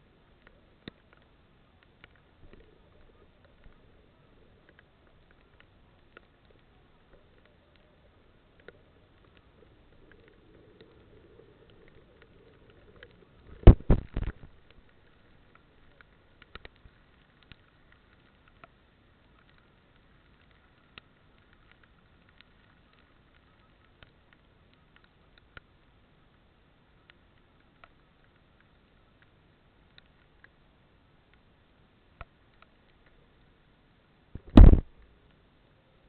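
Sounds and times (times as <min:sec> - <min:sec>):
raindrops ticking on camera: 0:00.1 - 0:33.4, 0:34.4 - 0:35.4
loud knocks: 0:34.5 - 0:34.8.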